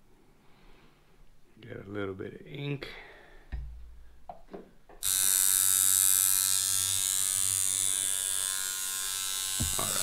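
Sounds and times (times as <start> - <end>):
tattoo machine buzzing: 5.0 - 10.0.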